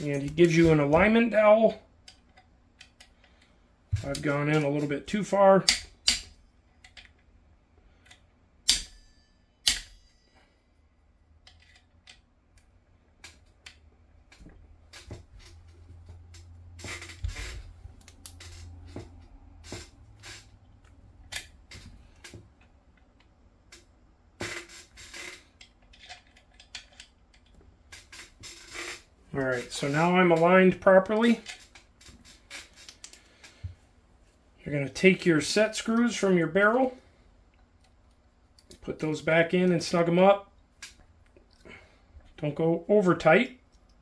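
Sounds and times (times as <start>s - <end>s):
small metal parts and tools tapping: 5.6s - 7.2s, 11.4s - 20.5s, 23.0s - 29.0s.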